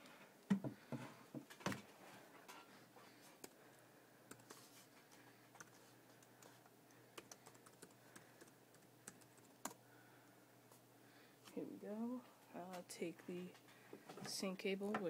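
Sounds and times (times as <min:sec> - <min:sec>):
laptop keyboard typing: 0:04.3 - 0:09.8.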